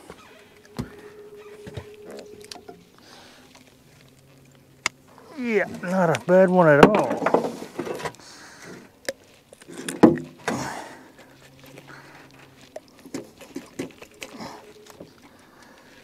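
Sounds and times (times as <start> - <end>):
fish handling clicks and knocks: 5.7 - 10.7, 12.4 - 15.4.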